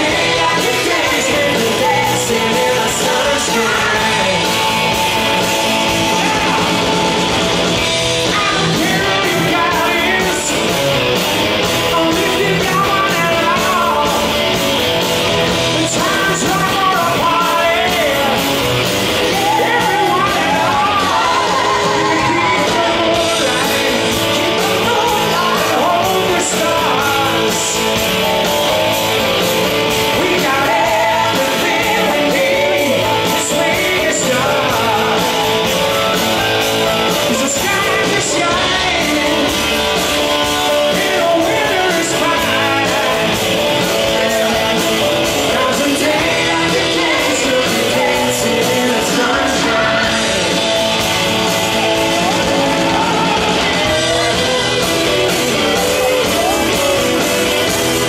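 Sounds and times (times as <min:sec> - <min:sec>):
backing singers: 0:00.0 - 0:58.0
drums: 0:00.0 - 0:58.0
electric guitar: 0:00.0 - 0:58.0
man singing lead vocals: 0:00.0 - 0:58.0.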